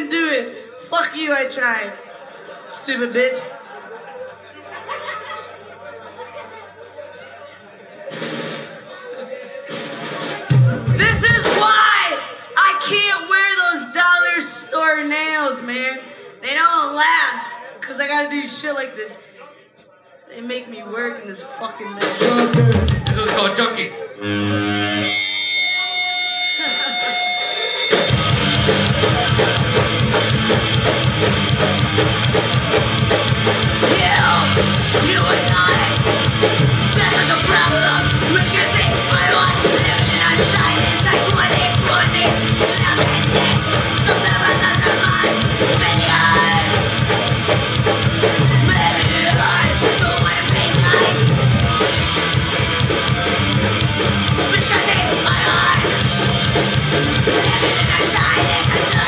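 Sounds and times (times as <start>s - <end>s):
drum kit: 7.9s - 12.1s, 22.0s - 25.6s, 26.5s - 59.0s
yelled vocals: 8.1s - 15.8s, 28.0s - 59.0s
electric guitars: 24.2s - 59.0s.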